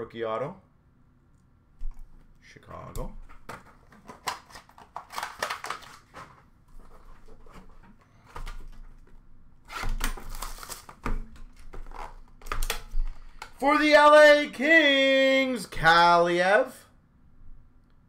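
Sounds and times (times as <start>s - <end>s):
cards clicking and rustling: 3.3s - 9.1s, 9.8s - 13.6s.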